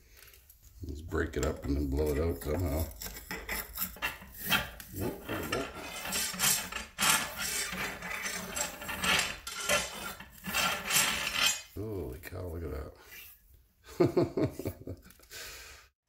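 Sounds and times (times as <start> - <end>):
metal bar scraping inside hole: 2.6 - 11.8.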